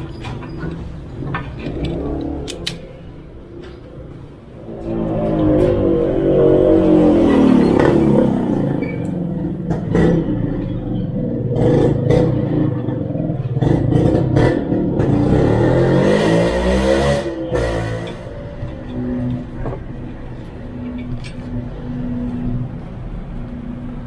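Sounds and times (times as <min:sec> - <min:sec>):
wire connectors clicking: 0:00.7 - 0:02.9.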